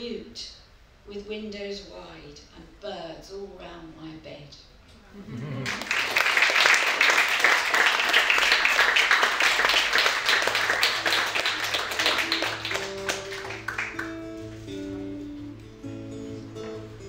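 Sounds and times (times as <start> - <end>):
audience applauding: 5.6 - 14.7
acoustic guitar picking notes: 12.3 - 17.0.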